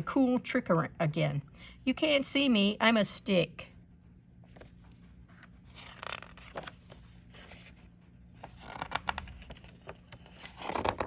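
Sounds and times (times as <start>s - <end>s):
book page rustling: 4.4s - 11.0s
crinkly paper sounds: 4.5s - 11.0s
soft paper scrapes: 4.5s - 11.0s.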